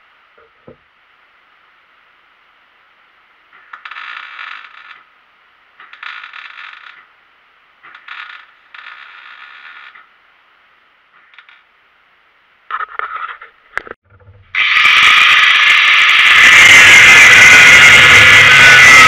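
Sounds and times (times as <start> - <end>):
welding arc crackling: 3.5 - 7.2, 7.8 - 10.1, 14.6 - 19.0.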